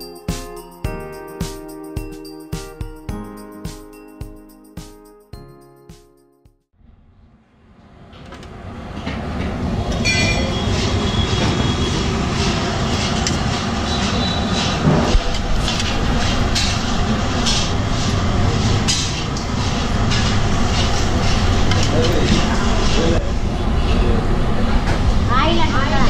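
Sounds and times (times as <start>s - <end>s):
steady rumbling background noise: 6.8s - 26.0s.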